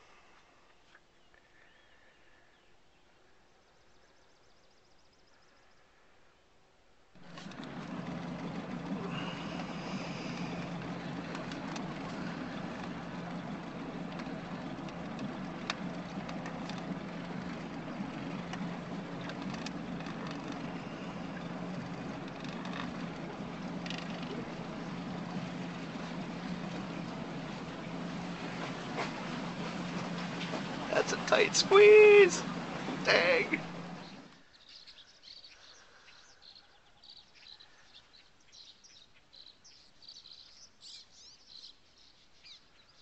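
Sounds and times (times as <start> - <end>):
water and air rushing: 7.2 - 34.4
motorboat engine humming: 7.2 - 34.6.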